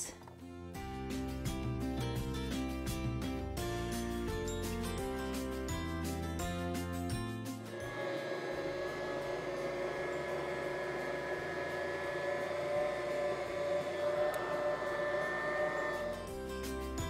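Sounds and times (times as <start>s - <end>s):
stand mixer motor whining: 7.7s - 17.0s.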